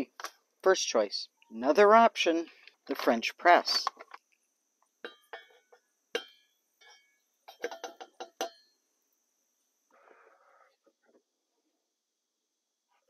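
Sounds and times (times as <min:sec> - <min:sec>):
scoop clinking against metal carafe: 0:05.0 - 0:08.8.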